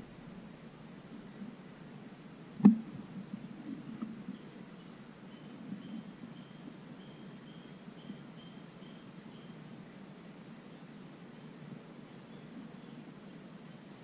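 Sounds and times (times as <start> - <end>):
steady hiss: 0.0 - 14.0
faint high chirps: 2.6 - 9.8.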